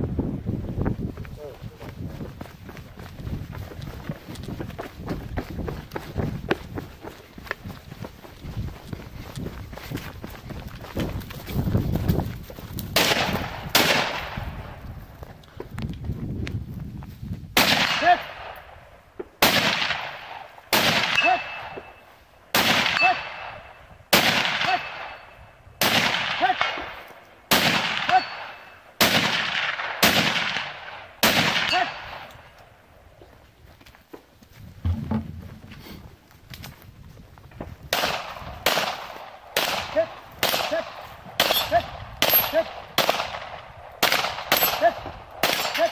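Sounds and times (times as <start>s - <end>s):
gunshots: 13.0s - 14.8s, 17.6s - 18.6s, 19.4s - 21.8s, 22.5s - 25.2s, 25.8s - 32.3s, 37.9s - 45.9s.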